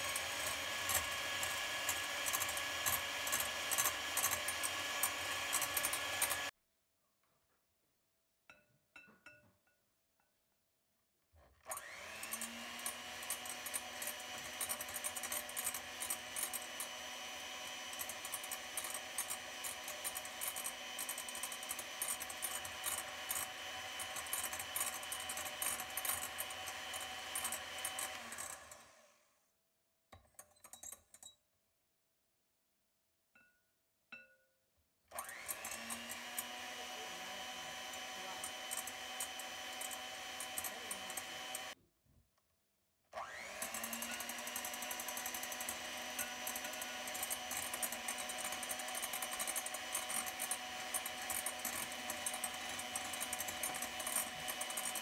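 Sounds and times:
electric hand mixer motor whine: 0.0 - 6.5, 11.6 - 29.3, 35.1 - 41.8, 43.2 - 55.0.

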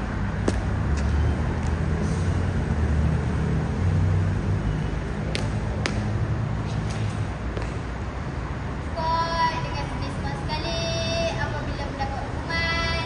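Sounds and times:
low outdoor rumble: 0.0 - 13.0
shoes stamping: 0.4 - 1.7
footfalls on concrete floor: 0.4 - 1.8.

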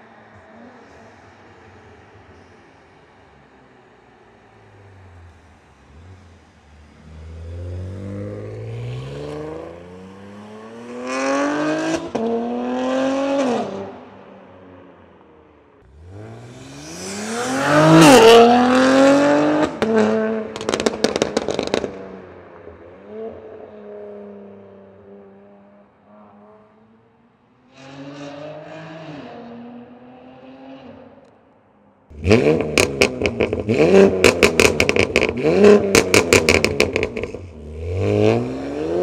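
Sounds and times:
car engine accelerating hard: 15.8 - 22.0, 32.1 - 39.0
exhaust crackles and pops: 20.6 - 22.0.

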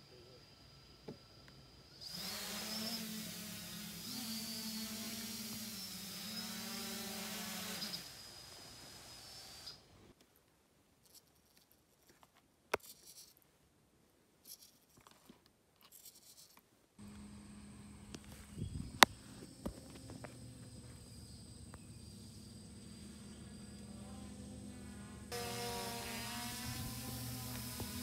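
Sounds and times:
drone motors humming: 17.0 - 28.0.

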